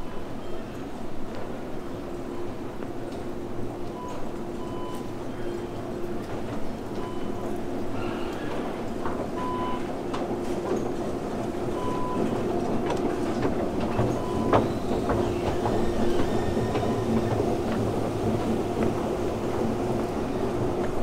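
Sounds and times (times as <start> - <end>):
escalator mechanical hum: 0.0 - 21.0
escalator steps rattling: 2.7 - 21.0
footsteps clicking: 6.2 - 21.0.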